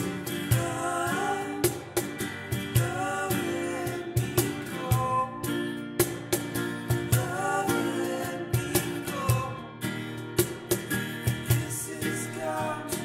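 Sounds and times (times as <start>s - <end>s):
voices singing: 0.0s - 5.7s, 7.0s - 9.7s, 11.4s - 13.0s
strummed acoustic guitar: 0.0s - 13.0s.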